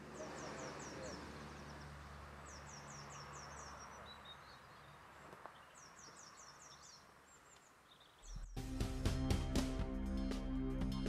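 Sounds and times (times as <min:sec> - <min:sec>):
small bird singing: 0:00.0 - 0:08.6.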